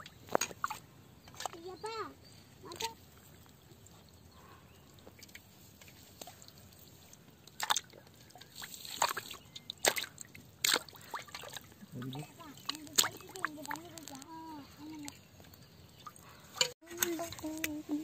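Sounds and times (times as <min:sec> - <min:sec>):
water splashing in a pot: 0:04.9 - 0:14.4.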